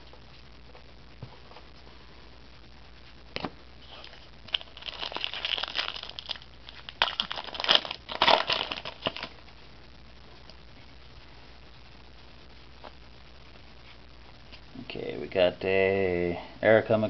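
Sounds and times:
wrapper crinkling: 3.9s - 9.4s.

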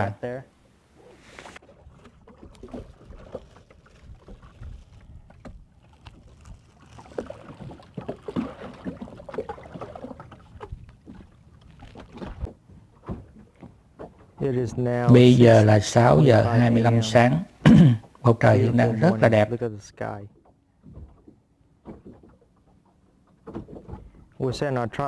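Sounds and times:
water lapping against boat hull: 0.9s - 24.7s
light knocks of hull and gear: 2.0s - 15.2s, 20.3s - 24.4s.

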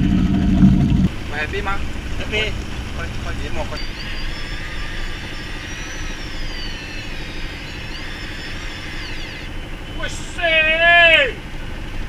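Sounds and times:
boat engine idling: 0.0s - 12.0s
electric fishing reel whining: 1.1s - 11.3s.

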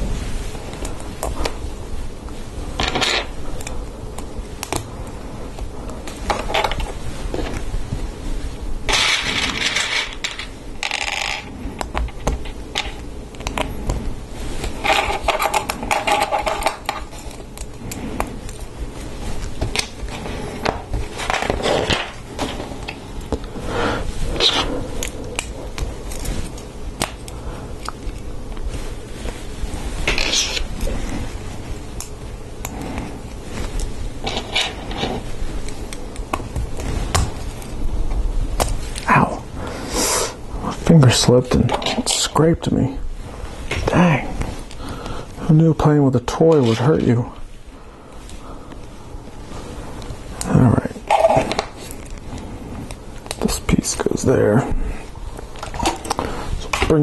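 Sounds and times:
plastic pieces scraping: 8.9s - 13.8s, 14.6s - 18.7s, 19.3s - 23.5s, 33.7s - 37.8s, 50.4s - 52.2s.

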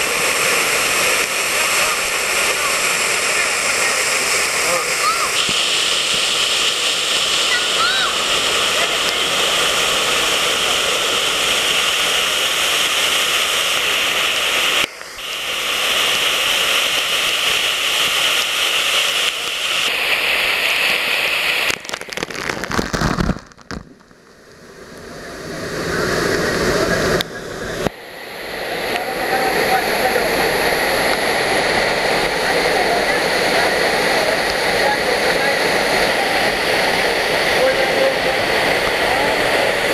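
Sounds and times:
waterfall rushing: 0.0s - 39.9s
sharp knocks and crackle: 21.6s - 24.2s.

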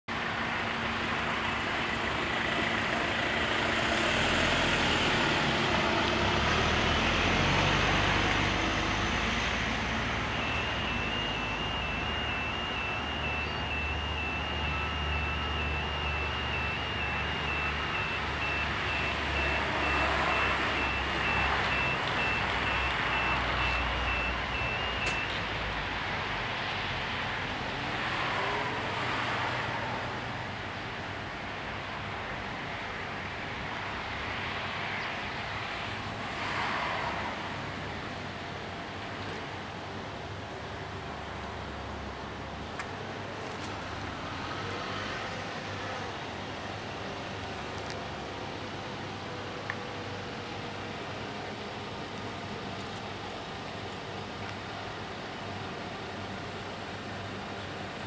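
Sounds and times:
low traffic rumble: 0.1s - 58.0s
car driving past: 3.1s - 11.8s
level crossing warning bell: 10.2s - 25.4s.

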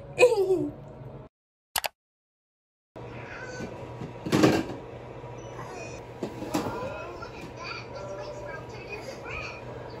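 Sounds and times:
television playing faintly: 5.4s - 10.0s.

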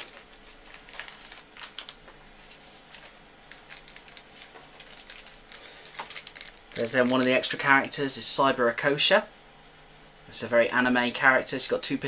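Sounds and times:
plastic bags rustling: 0.0s - 7.4s.

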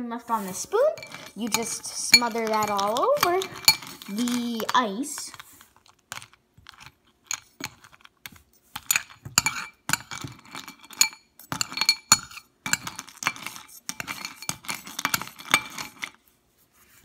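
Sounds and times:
metal spoon clinking on ceramic bowl: 0.4s - 4.3s, 8.8s - 16.1s
spoon clinking on ice cubes: 0.4s - 5.4s, 6.1s - 16.1s.

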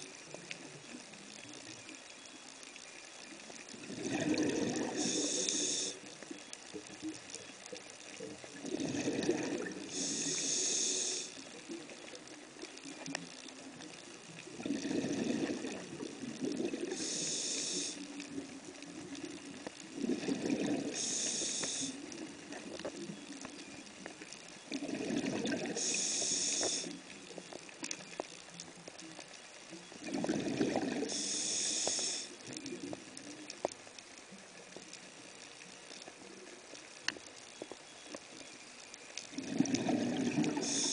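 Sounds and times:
scuba regulator breathing: 4.4s - 6.0s, 8.9s - 11.4s, 16.8s - 18.0s, 20.1s - 22.0s, 25.6s - 27.0s, 31.0s - 32.4s, 39.4s - 40.9s.

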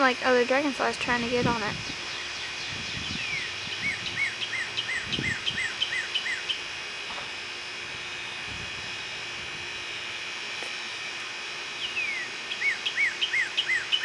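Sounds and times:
high insect chorus: 0.0s - 10.2s, 10.8s - 14.0s
bird singing: 1.9s - 6.7s, 11.7s - 14.0s.

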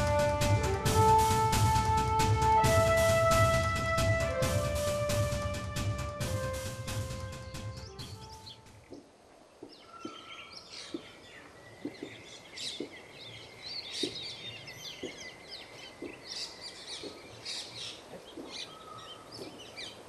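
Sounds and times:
birds chirping and calling: 7.4s - 20.0s.

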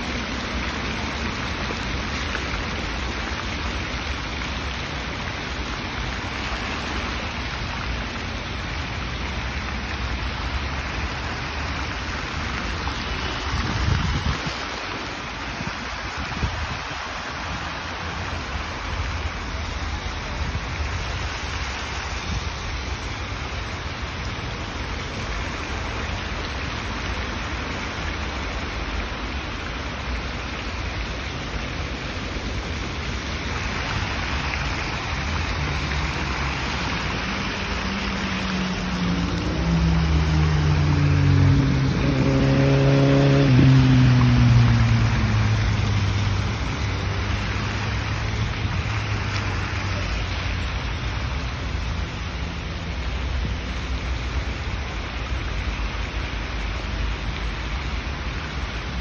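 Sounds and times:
fountain water splashing: 0.0s - 59.0s.

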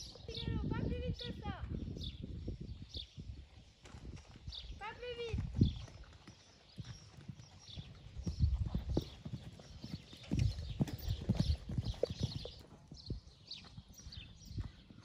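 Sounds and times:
hooves cantering on sand: 3.4s - 15.0s.

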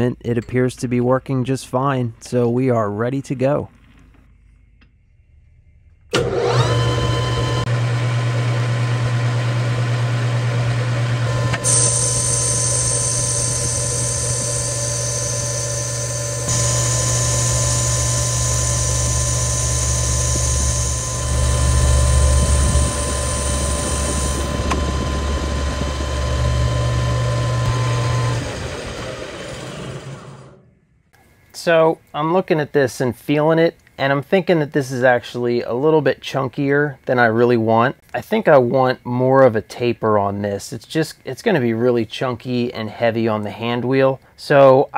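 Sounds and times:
metal lathe humming: 6.1s - 30.6s
high-pitched cutting hiss: 11.7s - 24.5s.

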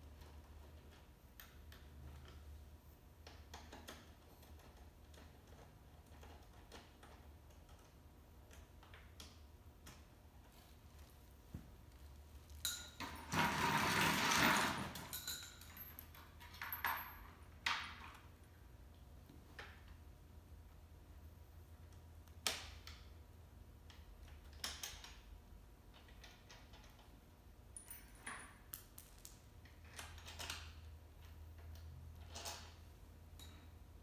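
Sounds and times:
metal tools clinking: 12.4s - 17.6s.

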